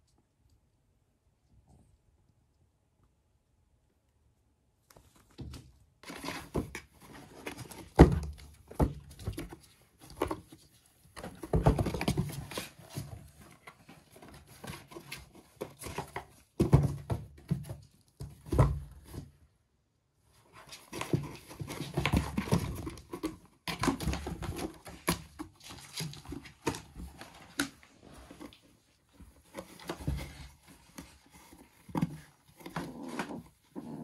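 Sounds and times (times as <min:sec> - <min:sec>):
kittens' paws thudding on cardboard: 0:05.3 - 0:19.4, 0:20.4 - 0:33.6
scratching on cardboard: 0:06.0 - 0:17.6, 0:20.4 - 0:34.0.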